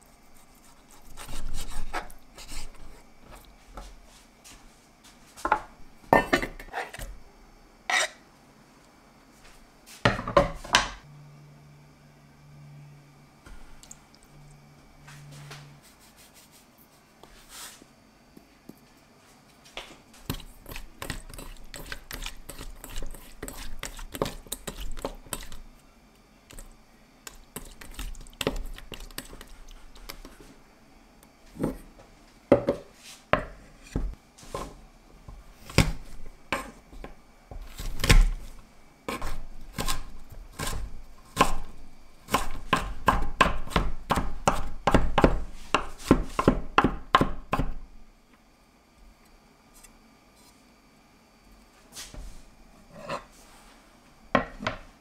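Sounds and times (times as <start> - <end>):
knife chopping on wooden board: 42.3 - 47.8.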